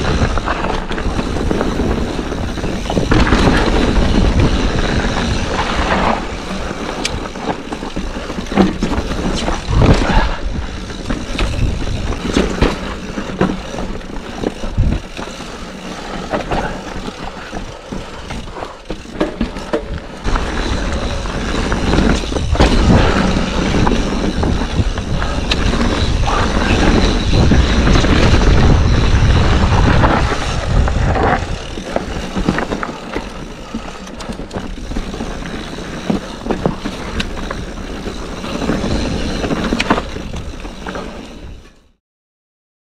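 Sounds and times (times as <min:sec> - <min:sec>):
bike tyres crunching over rock: 0:00.0 - 0:41.7
wind rumble on microphone: 0:00.0 - 0:41.8
bike knocking and rattling: 0:00.0 - 0:42.0.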